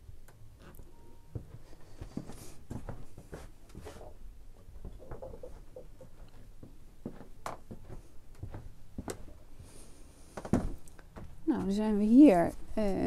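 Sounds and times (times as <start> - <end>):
footsteps: 1.3 - 13.0.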